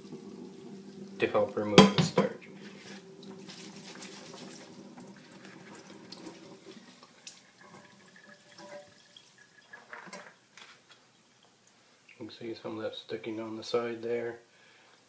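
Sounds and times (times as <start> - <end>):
tap water running into a pan: 0.0 - 10.6.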